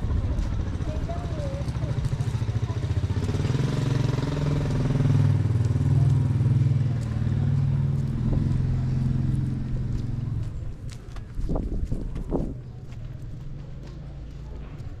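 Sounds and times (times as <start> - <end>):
small motorcycle engine running: 0.0 - 10.5.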